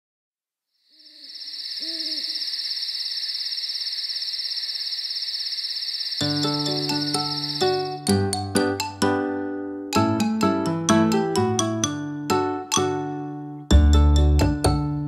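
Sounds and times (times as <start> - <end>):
cricket trill: 0.7 - 8.0
owl hooting: 0.9 - 7.9
gentle children's music: 6.2 - 15.0.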